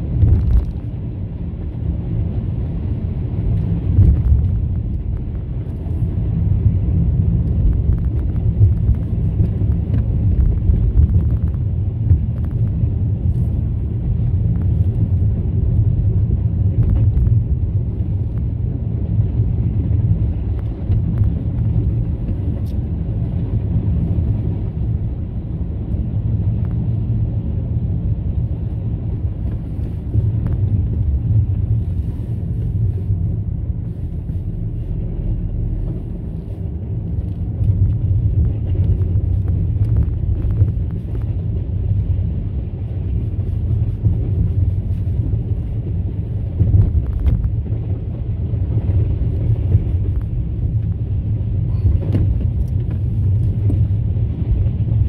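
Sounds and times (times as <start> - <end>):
car engine and tyre rumble: 0.0 - 55.0.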